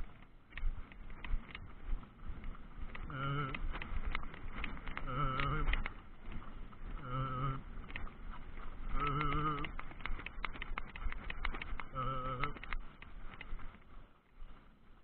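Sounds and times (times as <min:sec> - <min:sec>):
clicks of hooves and tack: 0:00.0 - 0:15.0
wavering pitched groan: 0:03.0 - 0:03.8, 0:04.9 - 0:06.0, 0:06.9 - 0:07.9, 0:08.8 - 0:09.9, 0:11.8 - 0:12.7.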